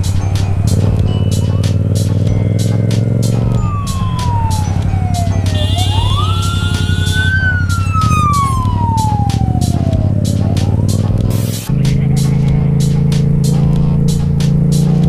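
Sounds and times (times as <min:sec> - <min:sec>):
siren wailing: 0:03.4 - 0:11.2.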